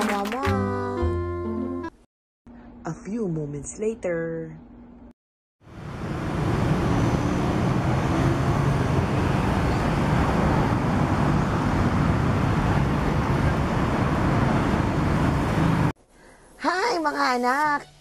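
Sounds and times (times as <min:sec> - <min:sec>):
traffic rumble: 0:05.7 - 0:16.0.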